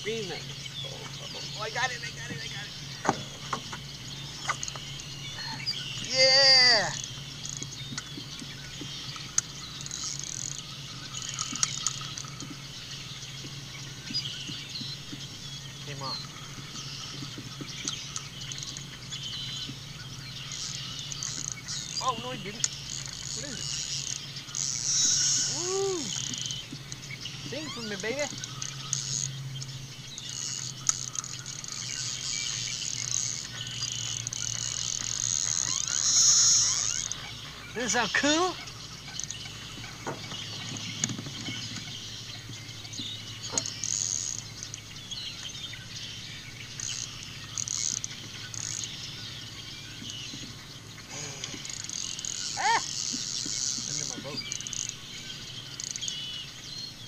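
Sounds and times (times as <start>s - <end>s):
steady low hum: 0.0s - 57.0s
fishing reel whirring: 9.5s - 12.4s, 20.5s - 26.6s, 30.2s - 37.3s, 43.5s - 44.6s, 46.7s - 49.0s, 51.1s - 55.0s.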